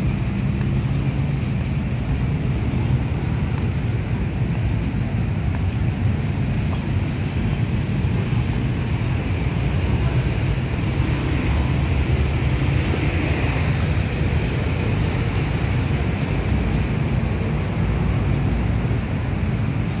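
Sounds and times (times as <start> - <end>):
road traffic rumble: 0.0 - 20.0
wind buffeting microphone: 0.0 - 20.0.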